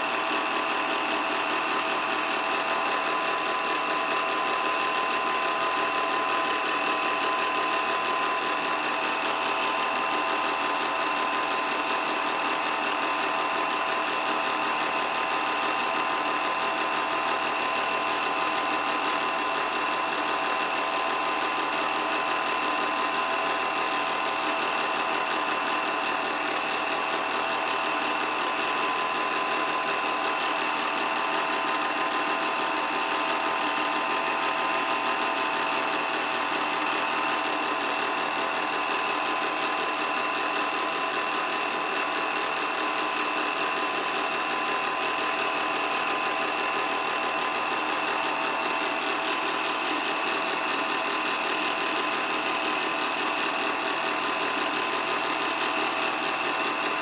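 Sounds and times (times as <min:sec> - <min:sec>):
film projector whirring and chattering: 0:00.0 - 0:57.0.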